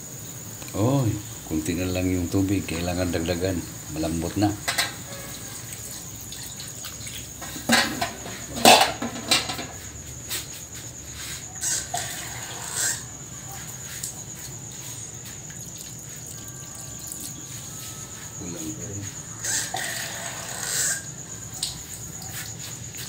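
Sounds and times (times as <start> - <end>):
steady high hiss: 0.0 - 23.0
water pouring and splashing: 1.6 - 11.5, 13.5 - 18.0.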